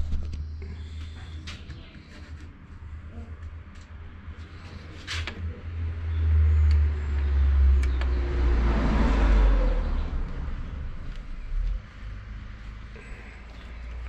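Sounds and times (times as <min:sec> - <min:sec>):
vehicle engine rumble passing: 0:00.0 - 0:14.0
rush of passing vehicle: 0:04.5 - 0:14.0.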